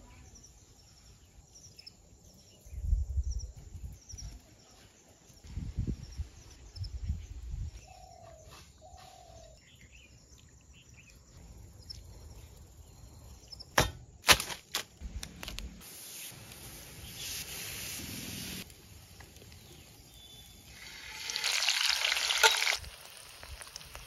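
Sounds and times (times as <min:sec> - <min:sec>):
meat sizzling over charcoal: 0:15.4 - 0:24.0.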